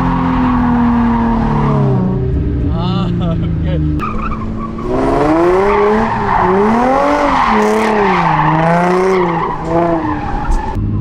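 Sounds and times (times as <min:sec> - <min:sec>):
car engine revving: 0:00.0 - 0:11.0
tyres skidding and squealing: 0:00.0 - 0:11.0.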